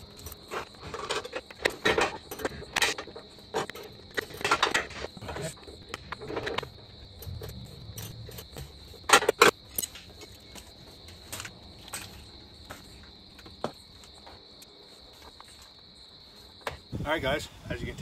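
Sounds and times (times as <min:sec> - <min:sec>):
metallic clinks and knocks: 0:00.0 - 0:13.8
crickets trilling: 0:00.0 - 0:18.0.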